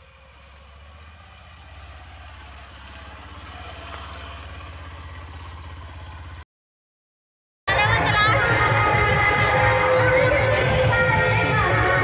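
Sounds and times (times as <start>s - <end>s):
motorcycle engine running: 0.0s - 6.4s, 7.7s - 12.0s.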